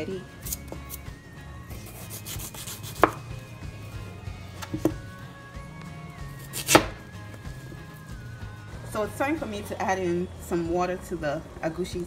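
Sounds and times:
soft background music: 0.0s - 12.0s
knife chopping on plastic board: 2.2s - 3.2s, 6.5s - 7.0s.

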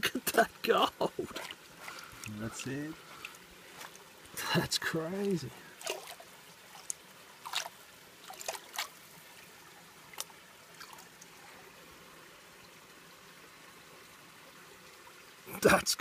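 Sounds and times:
faint steady hiss: 0.0s - 16.0s
water splashing in a plastic pan: 1.0s - 4.1s, 5.2s - 9.5s.

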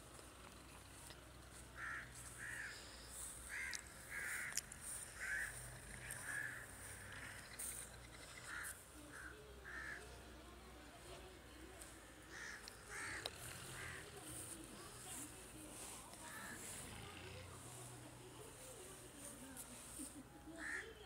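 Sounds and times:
crows cawing: 1.8s - 10.1s, 12.2s - 14.3s, 16.2s - 17.7s, 20.6s - 21.0s.

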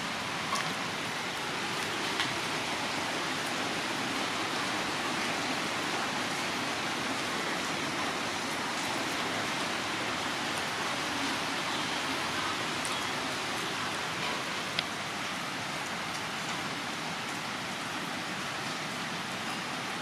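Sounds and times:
steady rain falling: 0.0s - 20.0s
raindrop ticks: 0.4s - 1.1s, 1.7s - 2.5s, 12.8s - 17.5s.

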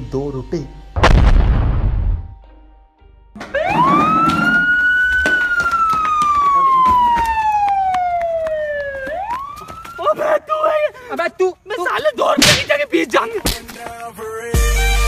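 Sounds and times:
siren wailing: 3.4s - 10.4s.

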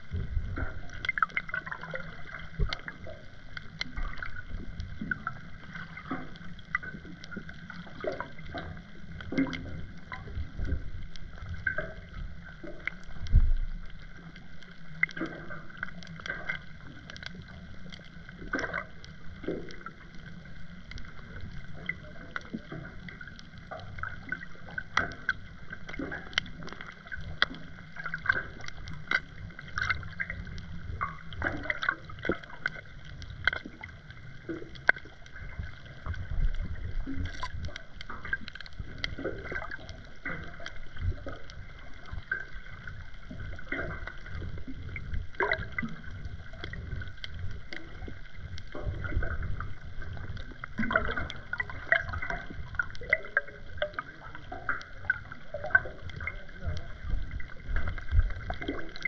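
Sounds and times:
low rumble of moving water: 0.0s - 59.0s
sharp clicks and crackles: 0.0s - 59.0s.

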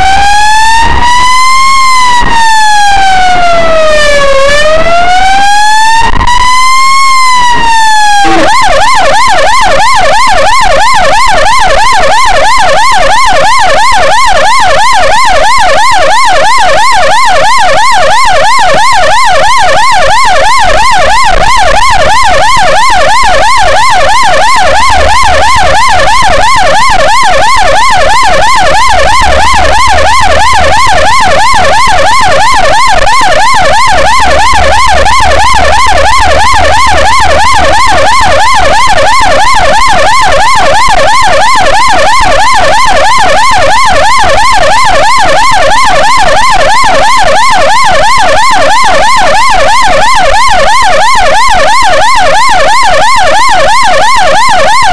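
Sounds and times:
ambulance siren wailing and yelping: 0.0s - 54.9s
engine and road rumble: 24.2s - 40.4s.

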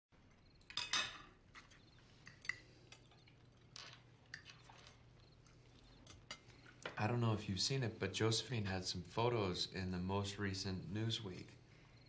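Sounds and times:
cutlery clinking on plates: 0.6s - 4.0s, 6.0s - 6.5s.

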